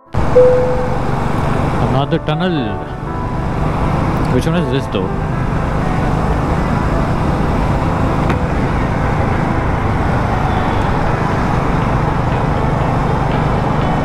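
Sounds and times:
motorcycle engine drone: 0.0s - 14.0s
wind rushing over microphone: 5.1s - 14.0s.

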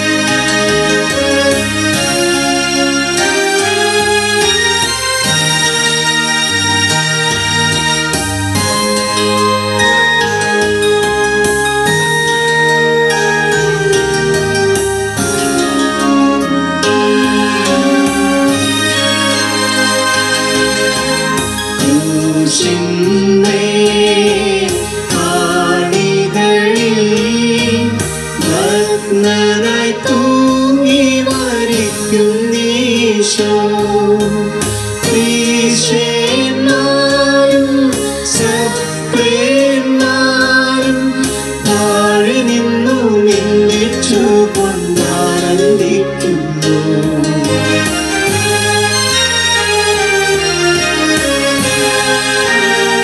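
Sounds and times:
instrumental accompaniment: 0.0s - 53.0s
person singing a devotional hymn: 21.8s - 47.6s.

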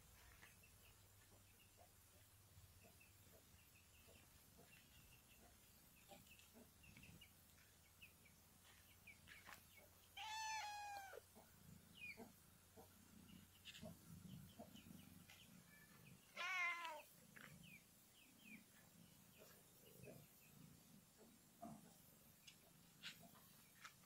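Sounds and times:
cat meowing: 10.2s - 11.2s, 16.4s - 17.0s.

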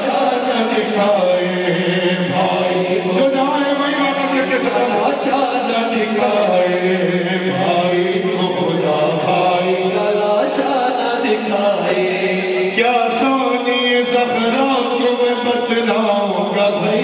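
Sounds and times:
man chanting a lament: 0.0s - 17.0s.

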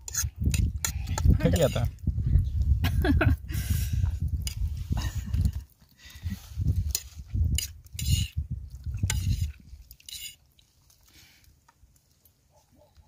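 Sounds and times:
low rumble on microphone: 0.3s - 5.6s.

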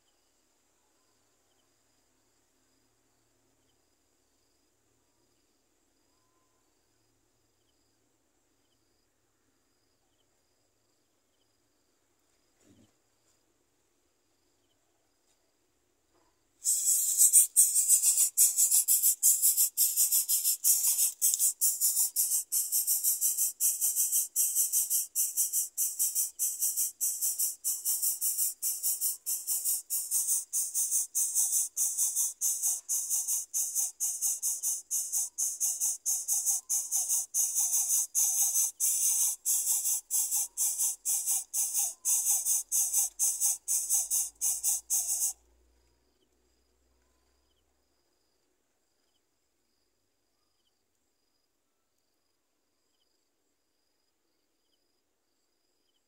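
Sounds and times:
nestlings begging calls: 16.6s - 45.4s.

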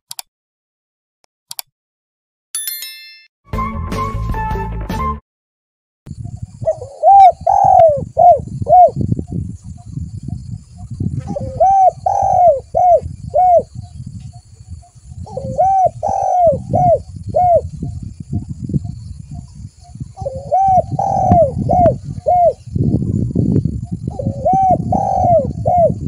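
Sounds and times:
dove cooing: 6.5s - 13.9s, 15.1s - 22.6s, 23.9s - 26.0s.

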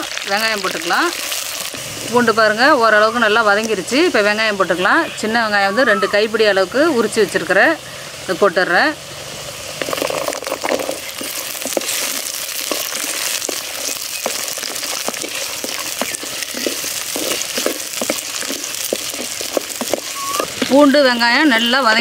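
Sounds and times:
shallots sizzling in hot oil: 0.0s - 22.0s
wooden spoon stirring: 9.8s - 21.6s.

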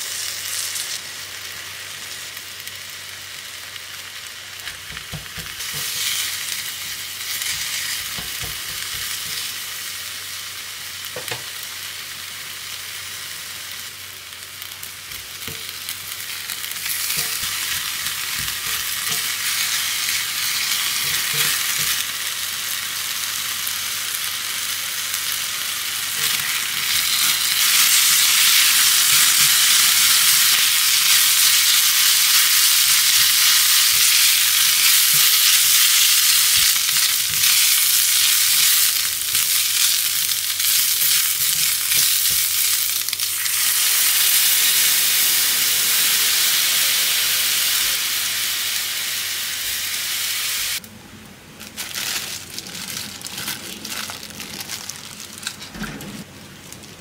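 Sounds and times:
beef sizzling in a pot: 0.0s - 50.8s
water hissing in a hot pot: 25.6s - 50.8s.

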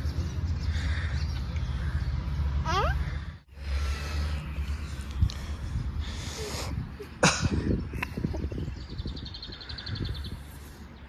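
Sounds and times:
wind buffeting microphone: 5.0s - 11.0s.

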